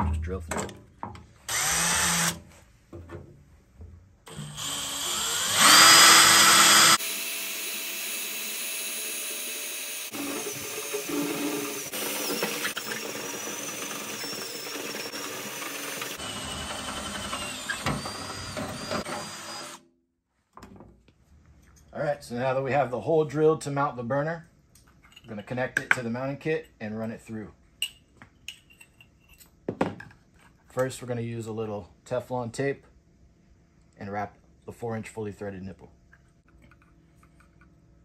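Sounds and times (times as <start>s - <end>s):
cordless drill whining: 1.5s - 2.4s, 4.3s - 19.8s
step bit boring through sheet steel: 4.3s - 19.8s.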